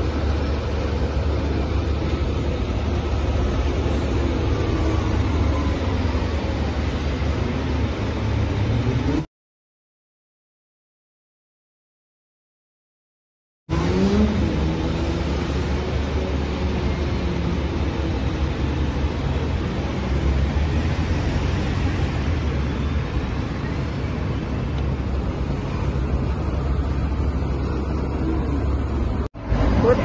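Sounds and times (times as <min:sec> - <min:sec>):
road traffic: 0:00.0 - 0:09.3, 0:13.7 - 0:30.0
vehicle engine rising in pitch: 0:13.7 - 0:18.1.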